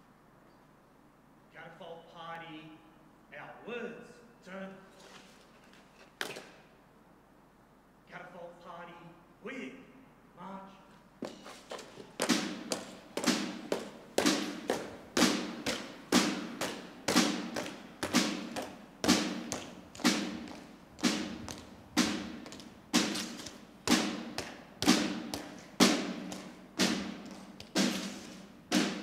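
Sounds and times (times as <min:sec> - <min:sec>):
side drum slow march beat: 0:11.2 - 0:29.0.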